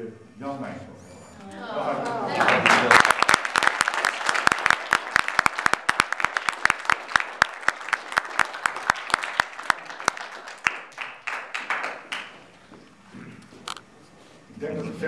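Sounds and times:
audience applauding: 1.9s - 12.6s.

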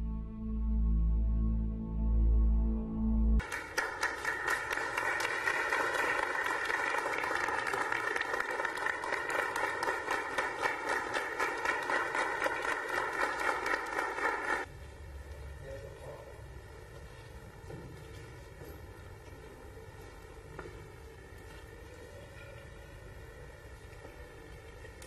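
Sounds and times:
crowd applauding: 3.4s - 14.7s.

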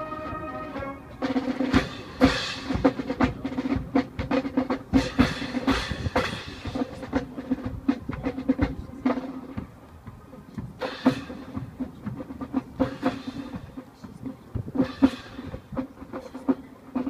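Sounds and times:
wind section holding a chord: 0.0s - 2.9s
rapid snare drum strokes: 0.0s - 17.0s.

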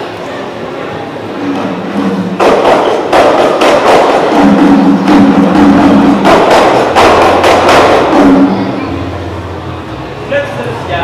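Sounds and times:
sharp percussive strikes: 1.4s - 9.8s.

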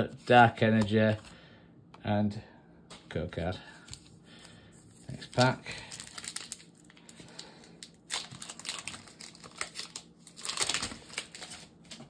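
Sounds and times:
foil wrapper crinkling and tearing: 4.9s - 12.0s.

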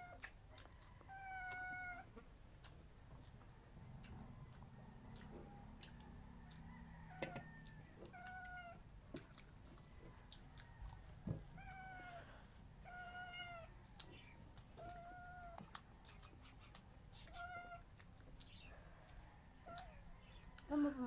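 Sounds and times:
cat meowing: 1.1s - 2.1s, 12.8s - 13.7s, 14.8s - 15.6s.

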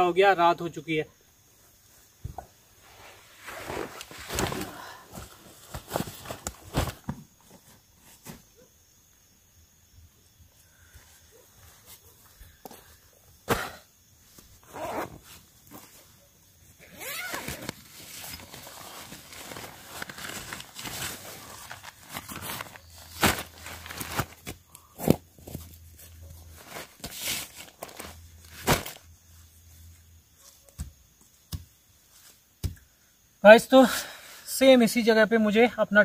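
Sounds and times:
nylon fabric rustling: 2.8s - 7.0s, 14.6s - 15.9s, 16.8s - 24.5s, 25.5s - 29.1s.

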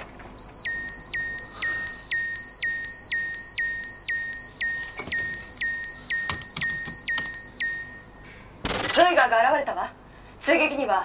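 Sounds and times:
electronic alarm beeping: 0.4s - 8.8s.

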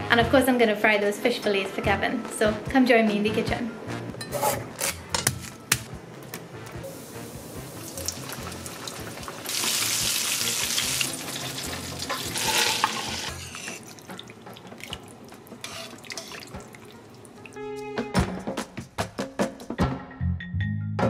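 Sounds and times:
faint background music: 0.0s - 21.0s
hot oil sizzling with fish frying: 6.8s - 17.5s.

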